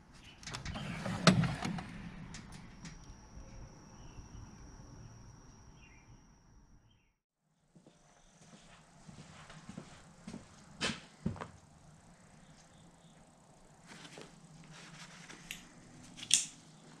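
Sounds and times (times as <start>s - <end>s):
metal drawer sliding open: 0.4s - 2.6s
faint chirps: 2.9s - 7.2s.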